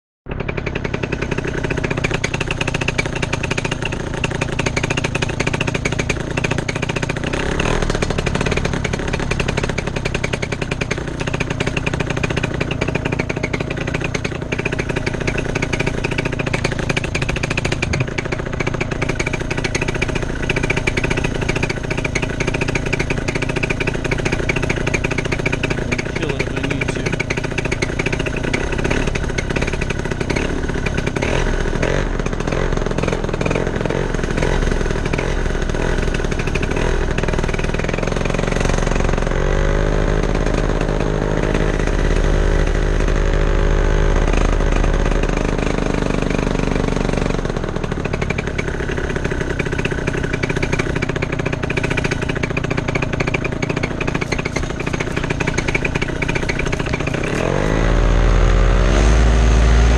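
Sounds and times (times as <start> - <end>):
paramotor engine running: 0.3 - 59.9.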